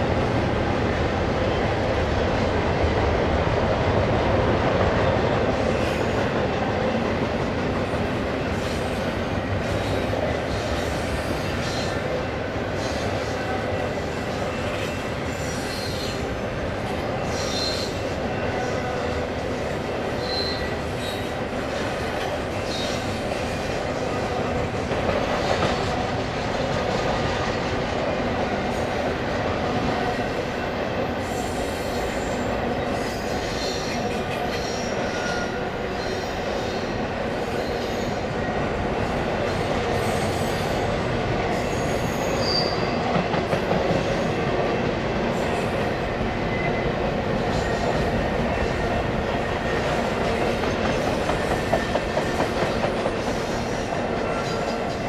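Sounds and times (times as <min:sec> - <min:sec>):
freight train rumbling on rails: 0:00.0 - 0:55.0
high-pitched wheel squeals: 0:20.2 - 0:21.3, 0:41.7 - 0:43.0.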